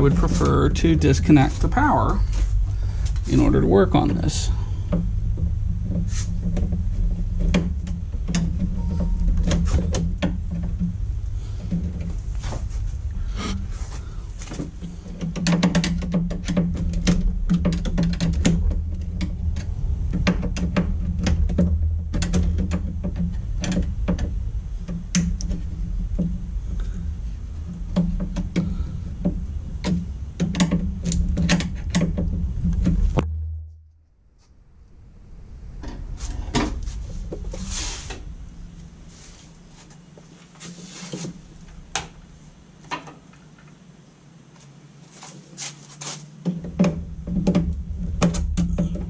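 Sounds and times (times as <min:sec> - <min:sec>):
tools and wires rattling in metal panel: 0:00.0 - 0:12.6, 0:13.2 - 0:33.2
steady low hum: 0:00.0 - 0:49.0.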